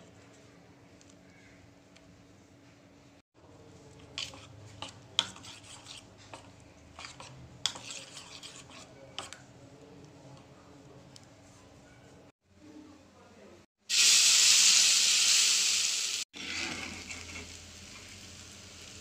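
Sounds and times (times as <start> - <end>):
metal spoon stirring batter in pan: 3.8 - 11.2
spoon clinking and scraping pan: 4.2 - 9.4.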